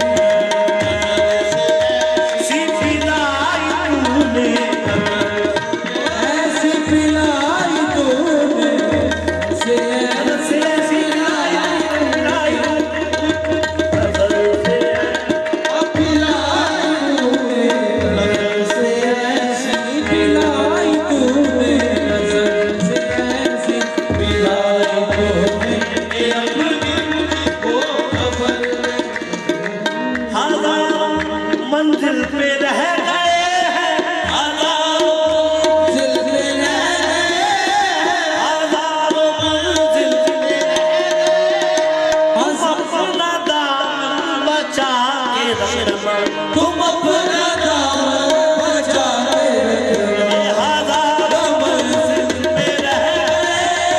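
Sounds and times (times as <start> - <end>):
harmonium melody: 0.0 - 53.9
tabla drumming: 0.0 - 53.9.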